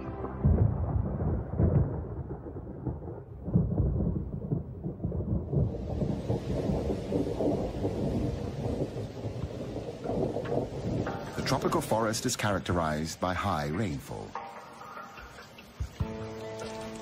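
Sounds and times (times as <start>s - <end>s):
thunder rumbling: 0.0s - 16.2s
rain hissing: 5.1s - 17.0s.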